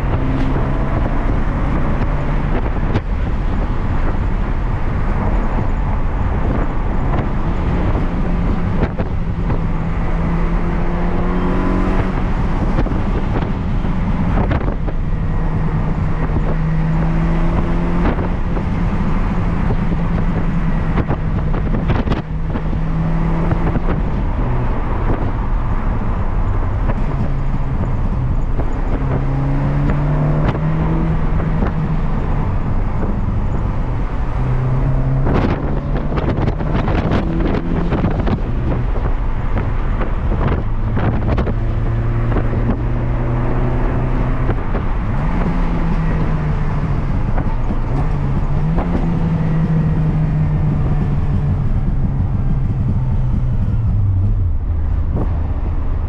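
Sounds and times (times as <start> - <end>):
car engine under load: 0.0 - 56.0
road and wind noise: 0.0 - 56.0.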